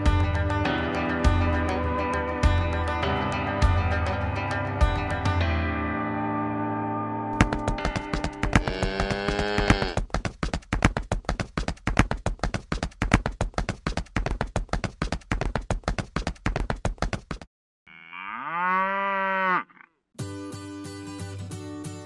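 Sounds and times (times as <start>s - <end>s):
music: 0.0s - 9.0s, 20.2s - 22.0s
clip-clop of hooves: 7.4s - 17.5s
cow mooing: 8.6s - 10.0s, 17.9s - 20.0s.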